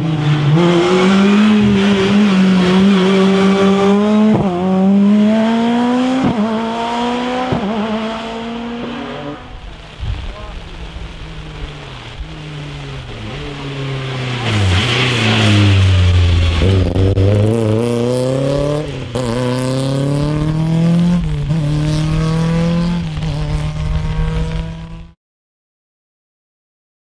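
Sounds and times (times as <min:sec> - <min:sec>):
rally car engine revving: 0:00.0 - 0:25.2
tyres hissing on wet road: 0:07.8 - 0:25.0.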